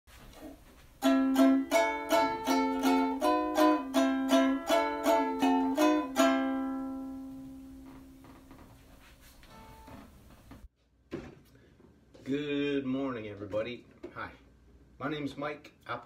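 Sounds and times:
plucked-string tune: 1.0 - 8.6.

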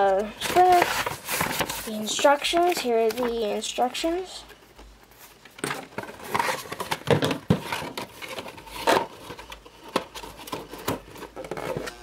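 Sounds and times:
plastic packaging crinkling: 0.2 - 3.8.

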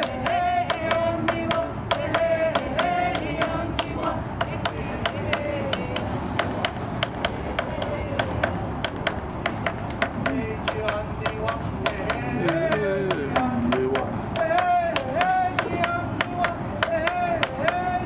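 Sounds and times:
person chanting a song: 10.2 - 18.0.

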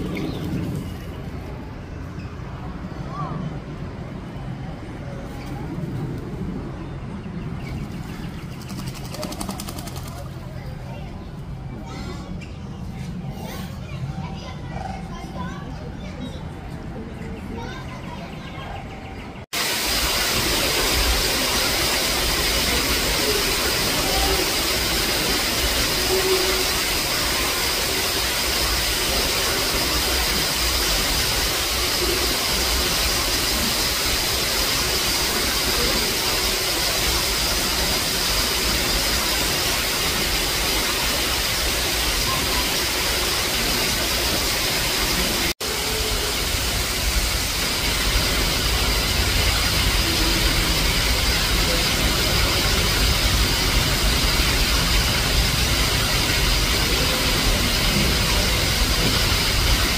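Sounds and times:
steady rushing noise: 19.3 - 59.9.

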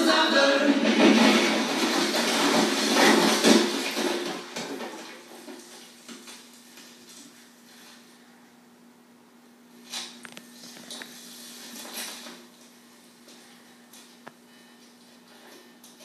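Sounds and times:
pop song through small speakers: 0.0 - 2.5
faint steady hum: 0.0 - 16.0.

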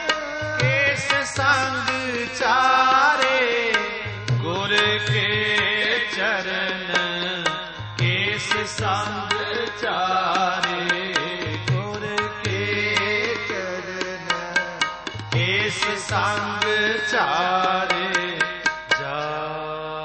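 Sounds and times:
tabla beat: 0.0 - 19.6.

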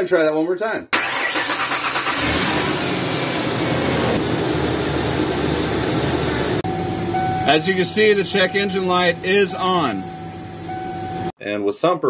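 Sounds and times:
car starter cranking: 1.0 - 3.1
car engine running: 1.5 - 11.3.

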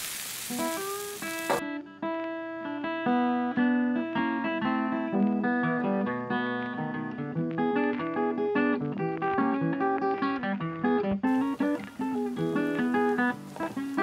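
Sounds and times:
acoustic guitar plucked and strummed: 0.5 - 14.0.

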